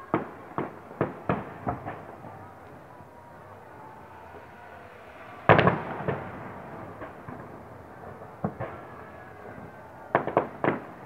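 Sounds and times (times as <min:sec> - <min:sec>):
distant fireworks bangs echoing: 0:00.0 - 0:11.0.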